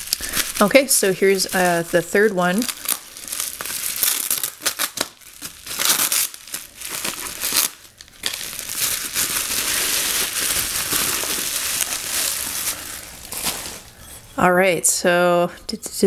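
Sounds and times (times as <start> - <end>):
bubble wrap crinkling: 0.0 - 14.3
tape peeling: 2.6 - 13.9.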